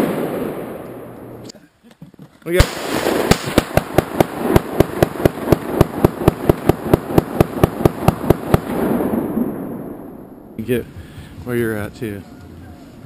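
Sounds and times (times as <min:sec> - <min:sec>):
rifle fired rapidly: 0:02.6 - 0:09.2.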